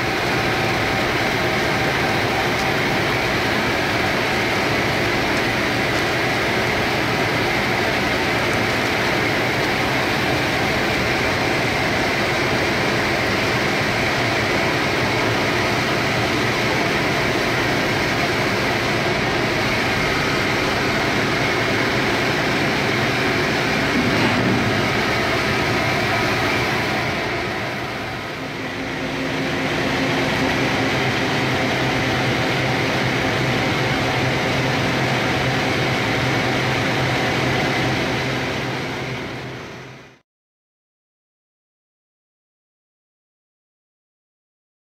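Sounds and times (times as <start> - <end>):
plant machinery: 0.0 - 34.6
industrial vacuum humming: 0.0 - 40.0.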